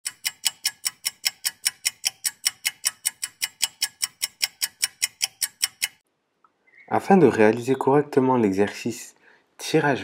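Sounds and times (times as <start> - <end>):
sharp even ticks: 0.0 - 6.0.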